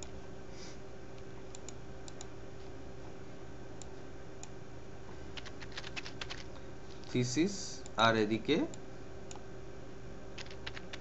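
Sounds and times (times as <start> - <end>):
low background hum: 0.0 - 11.0
computer mouse clicks: 1.5 - 2.3, 10.4 - 11.0.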